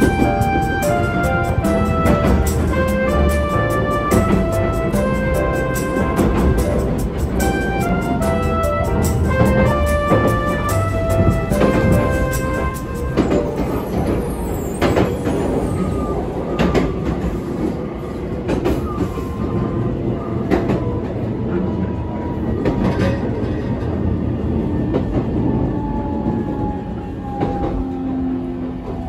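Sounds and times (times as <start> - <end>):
train wheels clicking over joints: 0.0 - 16.0
faint train whine: 0.0 - 29.0
train rumble: 0.0 - 29.0.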